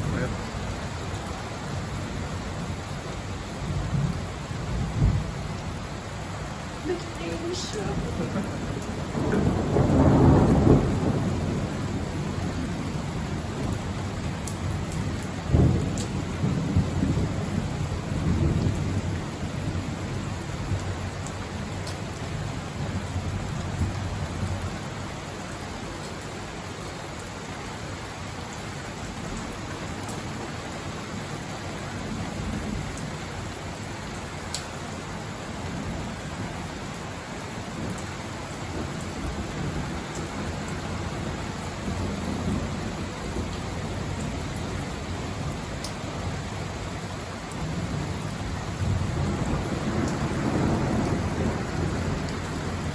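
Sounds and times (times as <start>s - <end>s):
steady rain: 0.0s - 52.9s
thunder rumbling: 6.8s - 13.8s, 15.4s - 20.1s, 47.7s - 52.9s.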